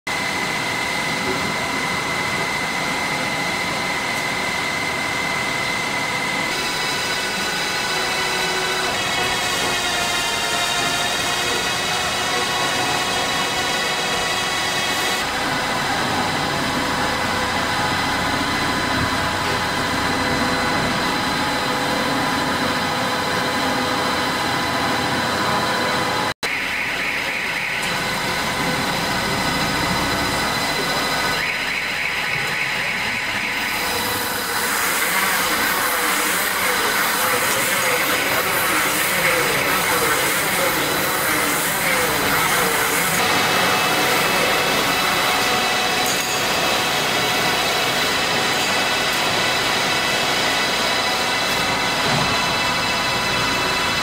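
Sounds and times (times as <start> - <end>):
baler machine hum and clatter: 0.1 - 54.0
machine whining tones: 0.1 - 54.0
loud hiss: 33.9 - 46.1.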